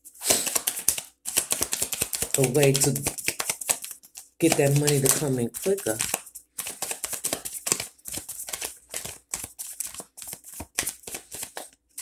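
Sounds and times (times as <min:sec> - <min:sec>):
cards being shuffled: 0:00.1 - 0:12.0.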